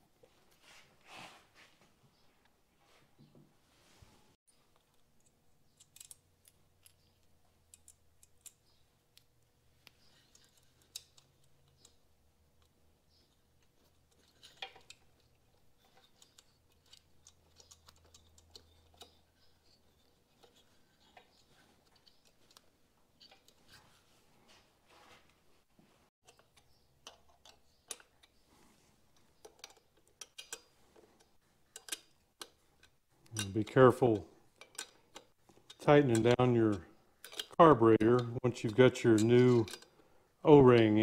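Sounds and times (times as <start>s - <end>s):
small metallic clicks and taps: 4.7s - 12.0s, 12.6s - 23.8s, 26.2s - 28.4s, 29.1s - 33.8s, 34.5s - 40.0s.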